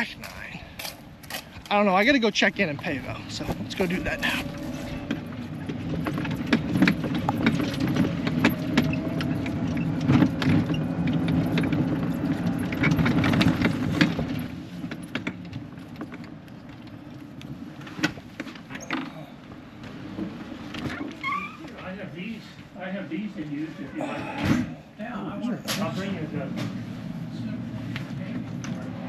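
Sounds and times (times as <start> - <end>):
golf cart rumble: 1.1 - 21.6
clattering and rattling: 2.8 - 17.2.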